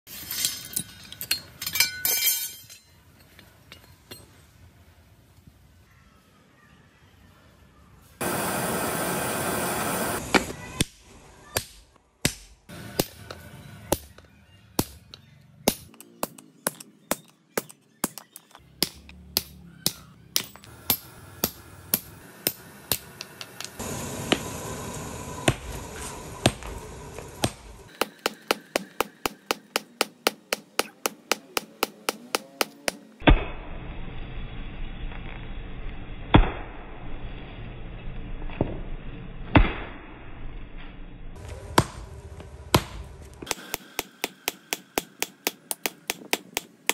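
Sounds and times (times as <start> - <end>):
hammer striking chisel: 15.7 - 23.8, 27.4 - 33.0, 43.5 - 46.9.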